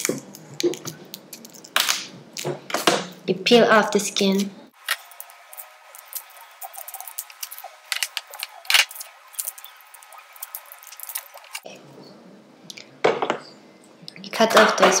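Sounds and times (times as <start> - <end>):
garlic skin crackling: 4.4 - 11.7.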